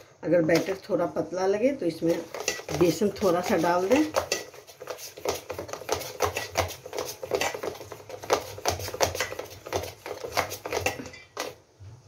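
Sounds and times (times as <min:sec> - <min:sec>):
batter slapping in steel bowl: 0:02.0 - 0:11.6.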